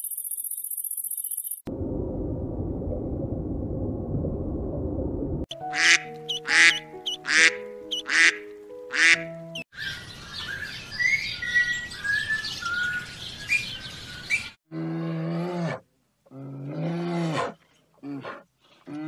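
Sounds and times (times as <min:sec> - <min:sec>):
duck quacking: 0:05.6 - 0:09.4
bird chirping short calls: 0:05.8 - 0:08.3.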